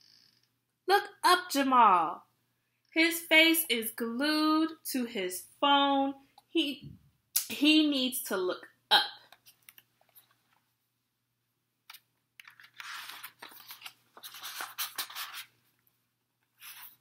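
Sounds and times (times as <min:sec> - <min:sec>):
book pages turning: 0:09.4 - 0:10.7, 0:11.9 - 0:15.8, 0:16.4 - 0:17.0.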